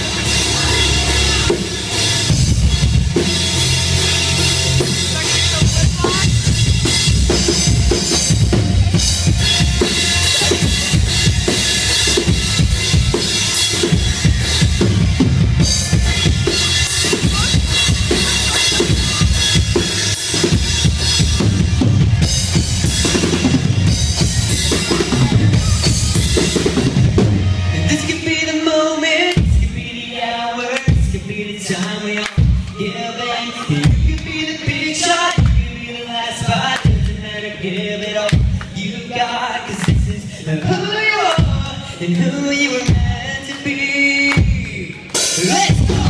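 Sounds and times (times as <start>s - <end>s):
electric guitar: 0.0s - 29.6s
drum kit beating: 0.0s - 30.0s, 30.7s - 32.8s, 33.7s - 46.0s
live band playing: 0.0s - 46.0s.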